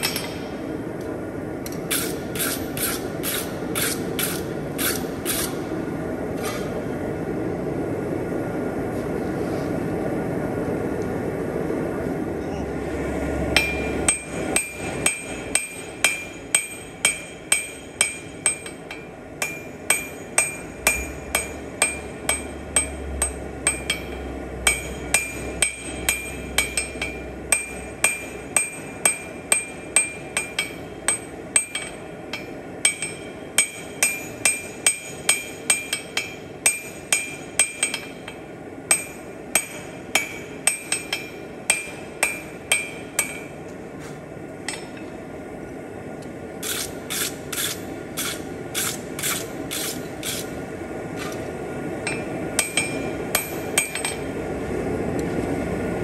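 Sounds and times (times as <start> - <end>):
hammer striking steel on anvil: 0.0 - 0.6, 13.5 - 43.6, 44.6 - 45.2, 52.0 - 54.3.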